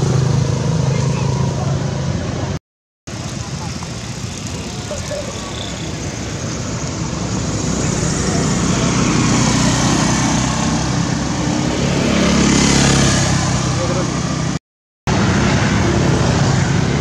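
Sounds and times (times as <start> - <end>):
vehicle engine rumbling: 0.0 - 12.3.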